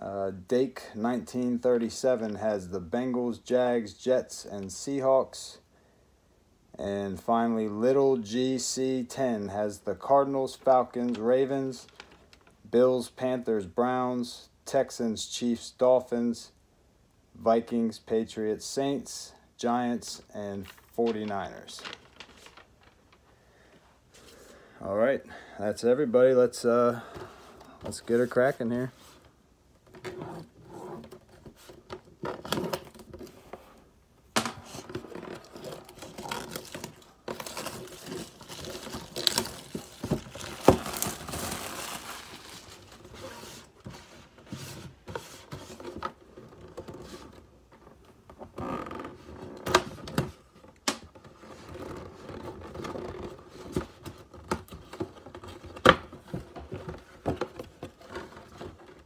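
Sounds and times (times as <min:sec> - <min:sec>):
plastic wrap crinkling and tearing: 0:35.0 - 0:43.1.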